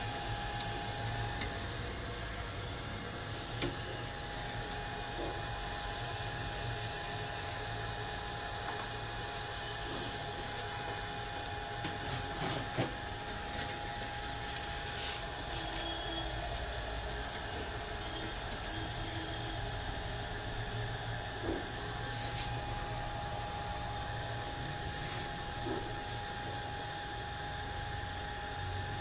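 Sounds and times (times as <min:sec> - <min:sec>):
faint constant whine: 0:00.0 - 0:29.0
steady hum: 0:00.0 - 0:29.0.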